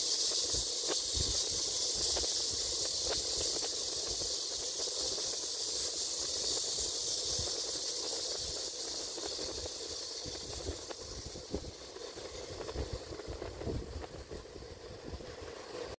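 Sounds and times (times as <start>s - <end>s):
high-pitched insect chorus: 0.0s - 16.0s.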